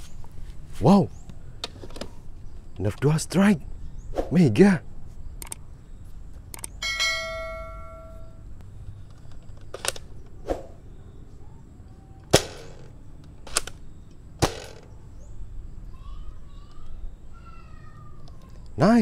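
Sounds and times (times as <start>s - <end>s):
bell-like ding: 6.8s - 8.4s
toy dart gun popping: 12.3s - 13.8s, 14.4s - 14.9s.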